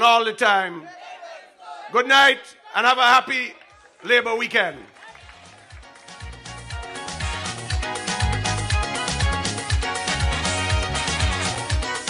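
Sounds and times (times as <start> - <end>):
upbeat dance music: 5.2 - 12.0.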